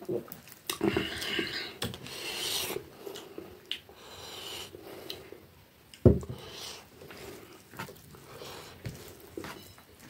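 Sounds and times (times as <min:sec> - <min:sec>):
fingers mixing rice: 0:06.3 - 0:10.0
soft handling and rubbing: 0:06.4 - 0:10.0.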